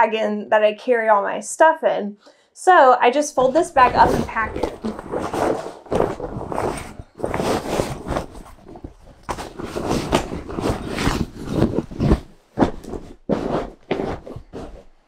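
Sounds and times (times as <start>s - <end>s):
fabric bag rustling: 3.3s - 15.0s.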